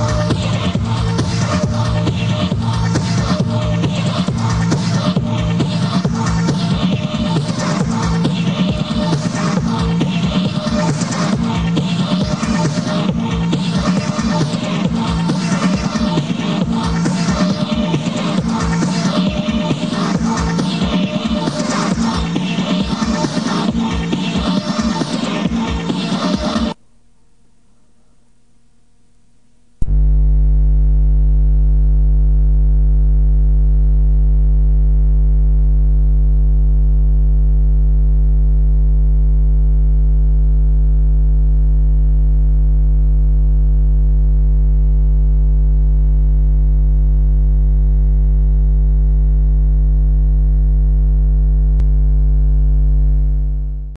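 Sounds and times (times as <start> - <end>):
loud buzzing hum: 29.6 - 54.0.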